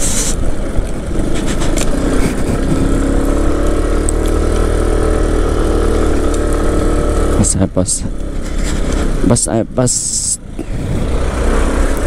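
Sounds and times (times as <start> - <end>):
scooter engine running: 0.0 - 9.3.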